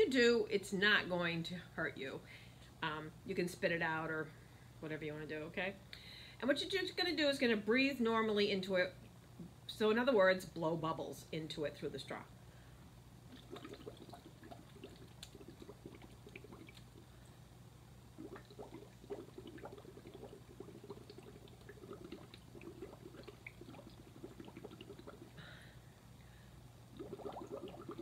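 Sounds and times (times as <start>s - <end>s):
bubbling through a straw: 13.3s - 17.2s, 18.1s - 25.6s, 26.9s - 28.0s.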